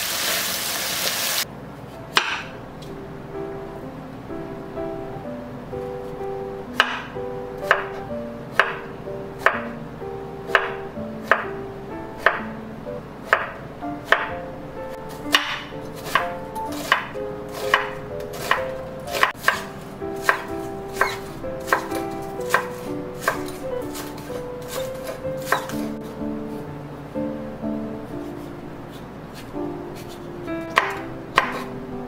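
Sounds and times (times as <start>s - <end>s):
knife chopping on wooden board: 2.1s - 2.5s, 6.8s - 7.1s, 7.7s - 9.7s, 10.5s - 11.5s, 12.2s - 12.4s, 13.3s - 14.3s, 15.2s - 26.1s, 29.4s - 31.7s
light background music: 2.1s - 32.0s.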